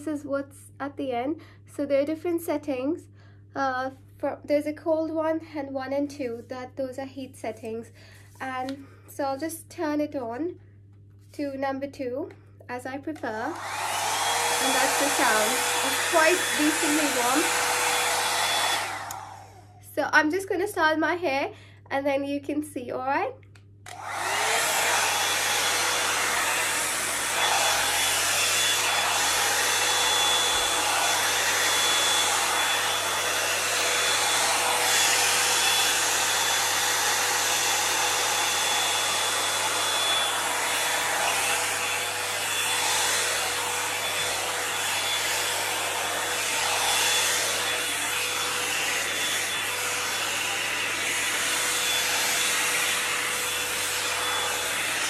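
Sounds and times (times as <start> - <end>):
hair dryer brush blowing air: 13.2 - 19.8, 23.9 - 55.0.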